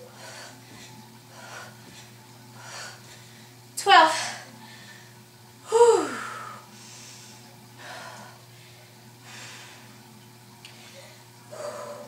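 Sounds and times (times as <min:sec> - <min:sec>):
low steady hum: 0:00.0 - 0:12.0
woman breathing hard: 0:10.9 - 0:12.0.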